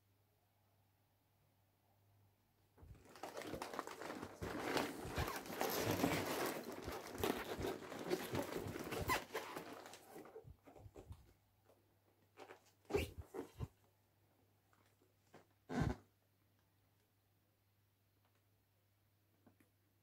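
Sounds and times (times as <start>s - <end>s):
cardboard box rustling and scraping: 3.1s - 10.1s.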